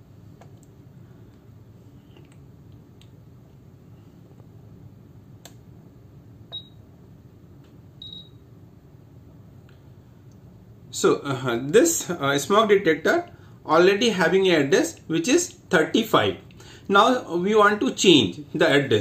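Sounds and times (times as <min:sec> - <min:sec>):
high-pitched buzzer beeps: 0:08.0 - 0:08.4.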